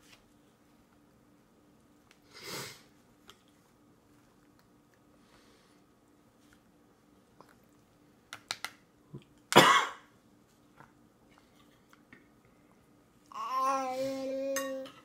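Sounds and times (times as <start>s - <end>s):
baby coughing: 9.6s - 10.1s.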